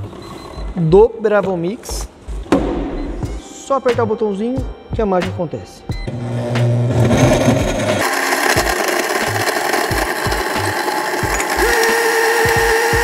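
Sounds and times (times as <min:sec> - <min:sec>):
blender motor spinning: 0:06.1 - 0:13.0
blade crushing ice: 0:06.9 - 0:13.0
high steady whine: 0:07.1 - 0:13.0.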